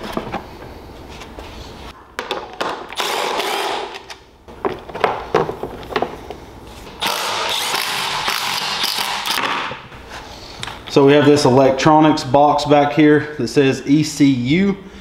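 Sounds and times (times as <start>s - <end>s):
cordless driver spinning out bolts: 7.0s - 9.7s.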